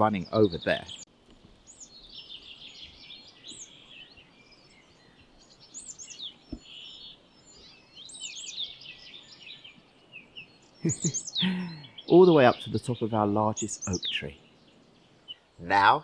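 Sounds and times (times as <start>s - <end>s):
songbirds chirping and singing: 0.0s - 16.0s.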